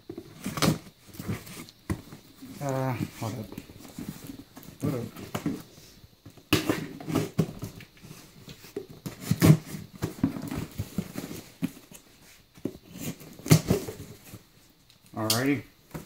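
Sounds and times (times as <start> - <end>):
cardboard box thumps and scrapes: 6.4 - 7.8, 8.6 - 11.9.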